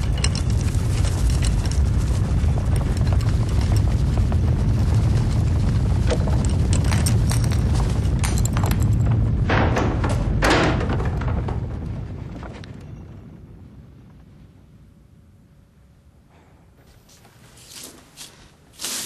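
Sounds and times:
plaster cracking and crumbling: 0:00.0 - 0:12.7
deep rumble: 0:00.0 - 0:15.9.

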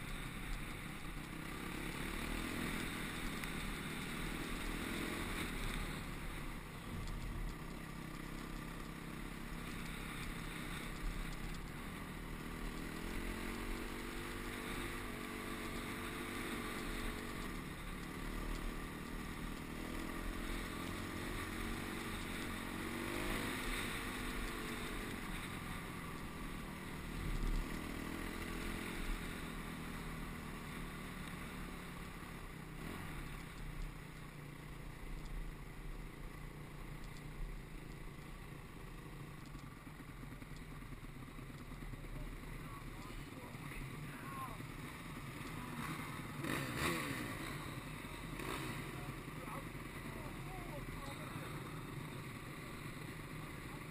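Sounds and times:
motorcycle engine accelerating: 0:00.0 - 0:53.9.

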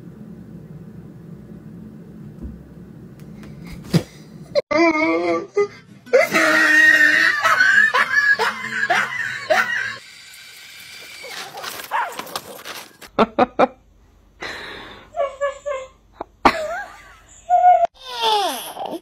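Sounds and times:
person screaming: 0:06.1 - 0:10.0.

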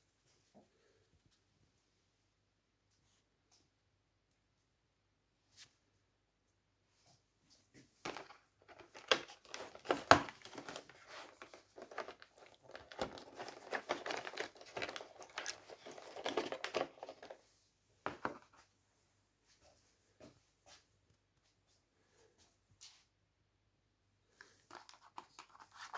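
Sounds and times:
wrapper crinkling: 0:08.1 - 0:17.4, 0:24.5 - 0:25.9.

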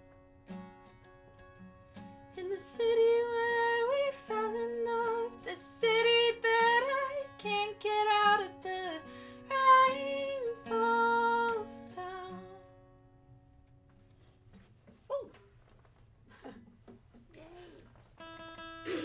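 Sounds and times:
strummed acoustic guitar: 0:00.0 - 0:15.0, 0:18.0 - 0:19.0.

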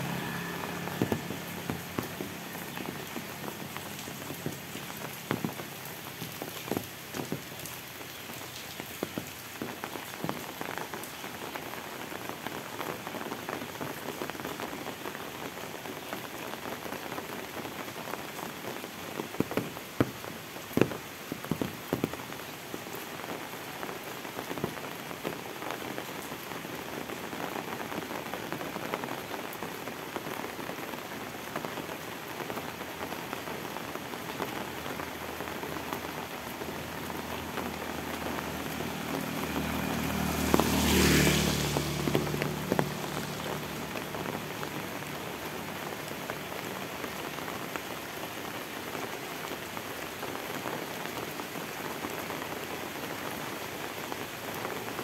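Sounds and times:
motorbike engine passing: 0:00.0 - 0:04.7, 0:37.7 - 0:45.8
rain on a wet road: 0:00.0 - 0:55.0
tyres hissing on wet road: 0:00.0 - 0:55.0.

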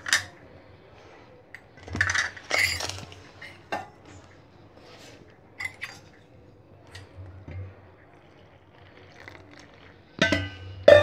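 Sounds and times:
utensils clinking on steel bowls: 0:01.9 - 0:03.9.

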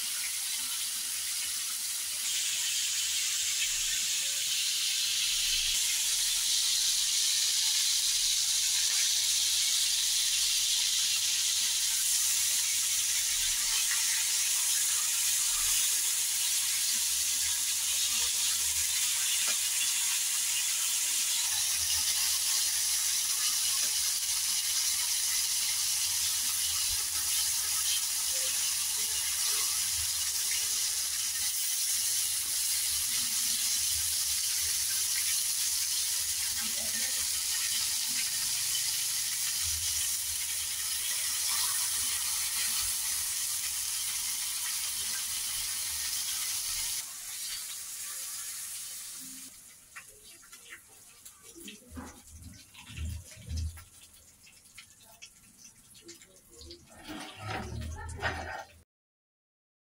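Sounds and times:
meat sizzling in oil: 0:00.0 - 0:58.6.

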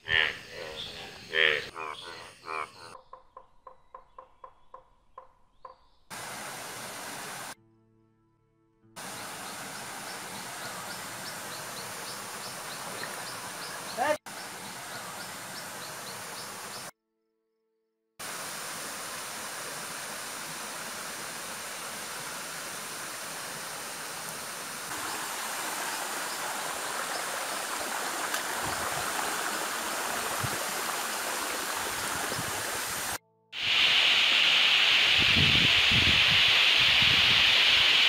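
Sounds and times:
waterfall and stream rushing: 0:06.1 - 0:07.6, 0:09.0 - 0:16.9, 0:18.2 - 0:38.0.

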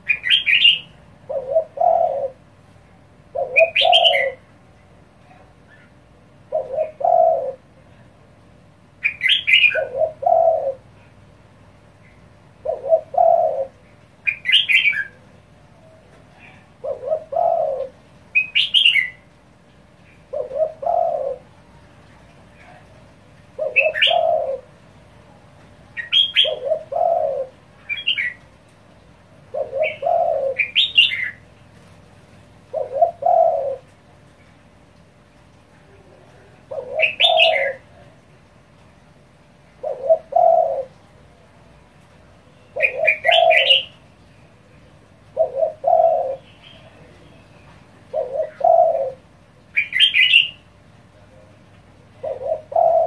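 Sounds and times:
bird chirping: 0:00.0 - 0:02.2, 0:03.4 - 0:04.4, 0:15.8 - 0:19.2, 0:42.5 - 0:49.1
dove cooing: 0:00.0 - 0:08.0, 0:09.0 - 0:11.2, 0:12.5 - 0:19.3, 0:20.0 - 0:21.9, 0:22.5 - 0:25.0, 0:26.0 - 0:28.4, 0:29.3 - 0:34.1, 0:35.9 - 0:38.2, 0:39.7 - 0:41.5, 0:42.5 - 0:44.0, 0:44.8 - 0:50.7, 0:51.3 - 0:53.0.

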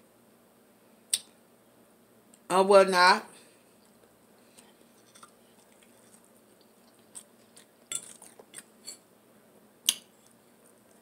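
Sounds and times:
silverware clinking on a plate: 0:07.9 - 0:09.0.

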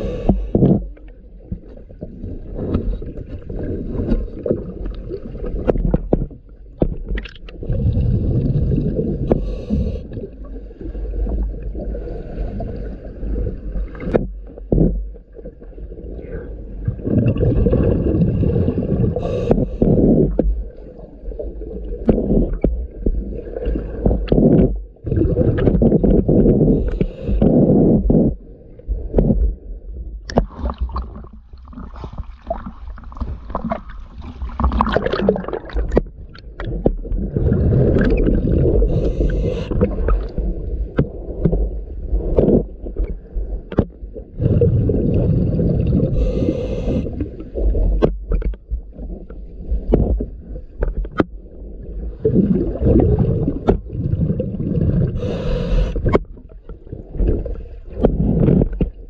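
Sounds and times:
scuba regulator bubbles gurgling: 0:00.0 - 0:59.0.

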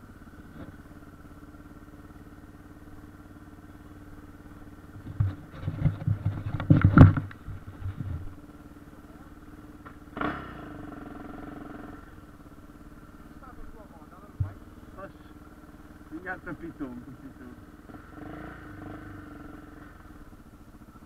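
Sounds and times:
motorcycle engine idling: 0:00.0 - 0:21.0
loud irregular thumps: 0:05.0 - 0:08.3.

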